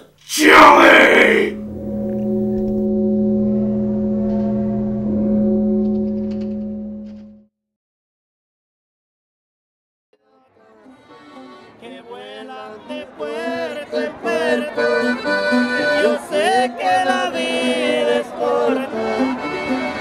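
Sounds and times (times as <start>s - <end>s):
instrumental music wavering melody: 1.6s - 7.4s.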